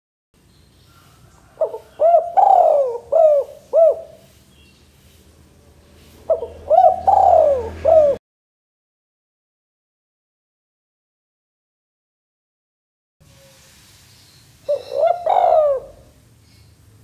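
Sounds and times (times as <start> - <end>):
dove cooing: 1.0 - 4.3, 6.3 - 8.2, 14.7 - 16.2.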